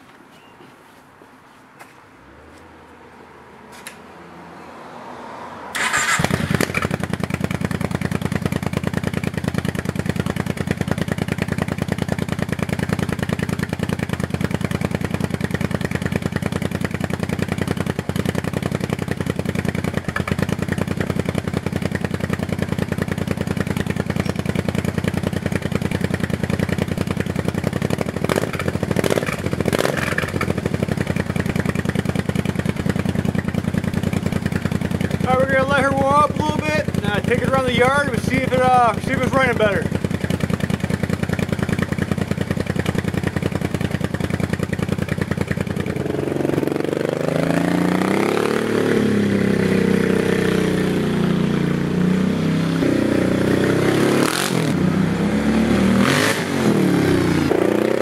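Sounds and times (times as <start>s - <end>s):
engine cranking and idling: 5.7s - 46.6s.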